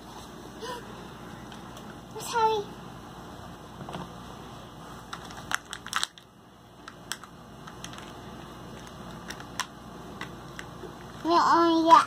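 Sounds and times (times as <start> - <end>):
plastic capsule clicks: 5.1 - 11.2.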